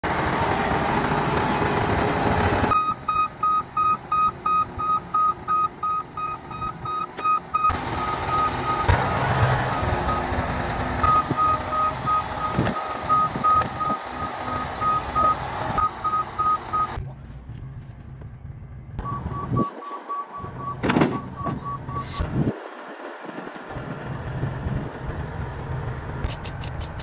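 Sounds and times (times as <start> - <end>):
bulldozer diesel engine running: 0.0 - 27.0
backup alarm beeping: 2.7 - 10.4, 11.0 - 17.0, 19.0 - 22.2.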